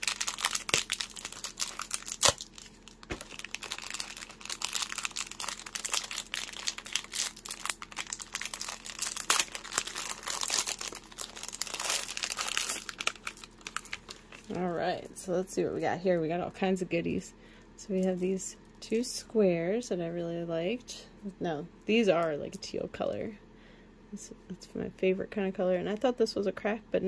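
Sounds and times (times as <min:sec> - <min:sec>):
plastic packaging crinkling: 0:00.0 - 0:15.0.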